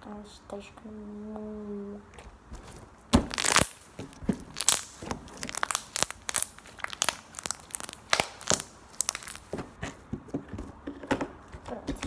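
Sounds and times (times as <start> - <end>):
slime popping and crackling: 2.6 - 9.8.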